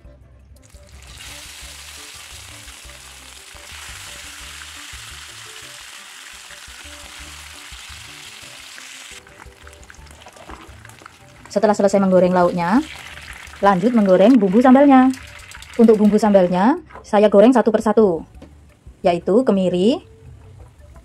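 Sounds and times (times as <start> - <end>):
soft background music: 0.0 - 21.0
fish frying in hot oil: 0.8 - 16.5.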